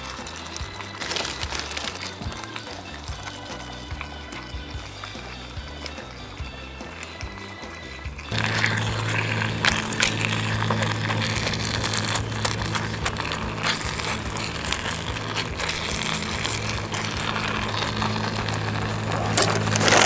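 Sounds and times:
stove burner hum: 0:08.3 - 0:20.0.

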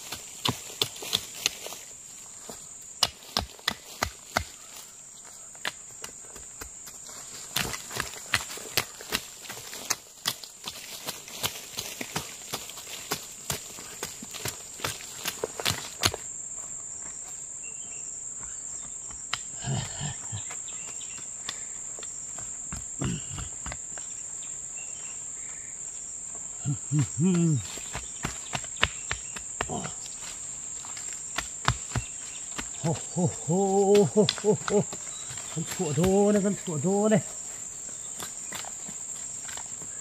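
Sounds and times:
insects droning: 0:00.0 - 0:40.0
person's voice: 0:26.6 - 0:27.7, 0:32.8 - 0:34.9, 0:35.6 - 0:37.3.

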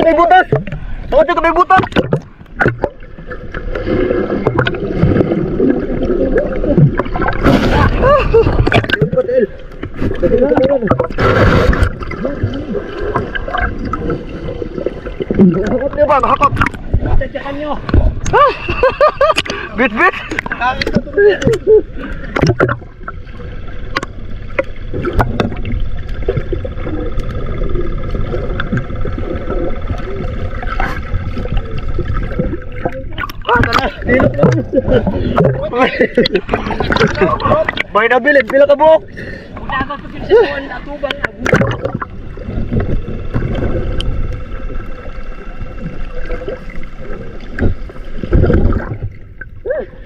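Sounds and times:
churning bubbling water: 0:00.0 - 0:50.0
muffled underwater noise: 0:00.0 - 0:50.0
sharp splashes: 0:03.7 - 0:09.2.

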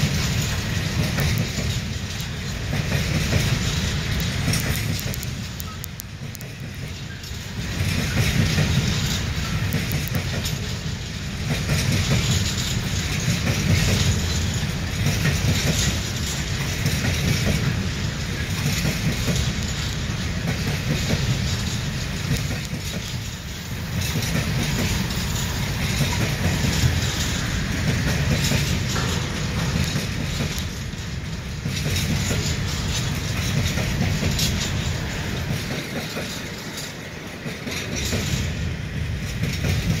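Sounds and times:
freight train wheels rumbling: 0:00.0 - 0:40.0
scattered clicks: 0:00.1 - 0:10.8, 0:11.5 - 0:23.4, 0:24.0 - 0:30.8.

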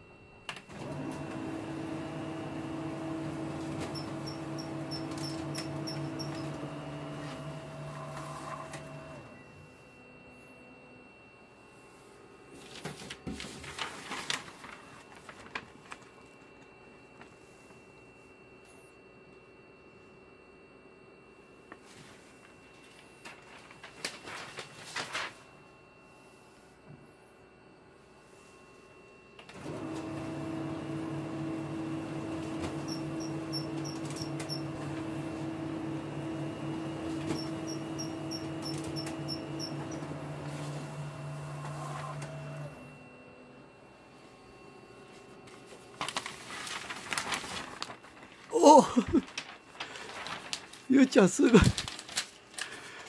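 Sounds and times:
copier humming: 0:00.0 - 0:53.0
paper sheet rustling and crackling: 0:12.5 - 0:16.4, 0:21.7 - 0:25.5, 0:45.2 - 0:53.0.

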